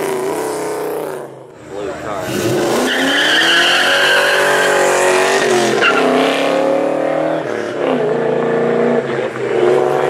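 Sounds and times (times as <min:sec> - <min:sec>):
car engine accelerating hard: 0:00.0 - 0:10.0.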